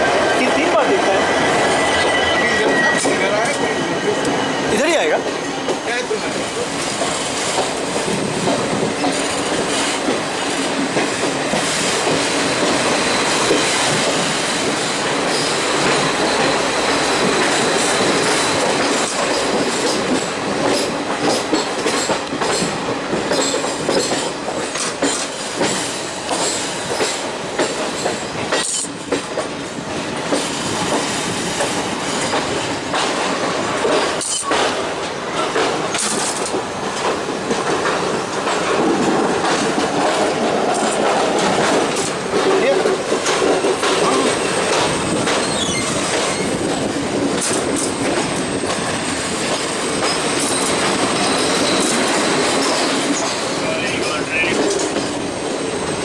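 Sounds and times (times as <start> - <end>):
rumble of train wheels on rails: 0.0 - 56.0
wheels squealing: 45.4 - 46.6, 49.9 - 53.3.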